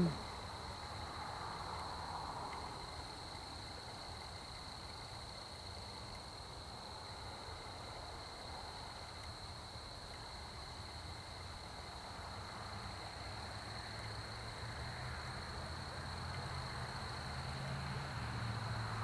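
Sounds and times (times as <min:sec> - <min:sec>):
insects chirping: 0:00.0 - 0:19.0.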